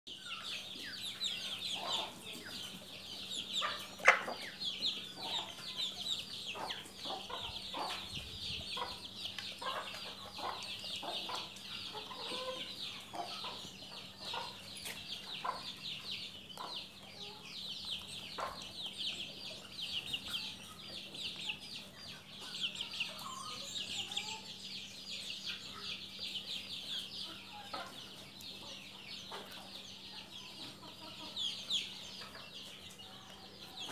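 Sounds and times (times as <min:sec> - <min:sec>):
hens clucking: 0:00.1 - 0:33.9.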